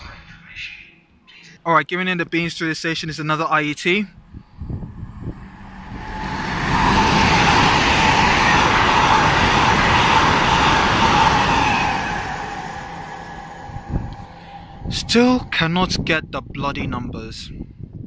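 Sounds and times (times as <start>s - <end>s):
train passing at speed: 4.2s - 16.9s
steady whine: 4.3s - 16.8s
wheel and rail noise: 4.8s - 16.0s.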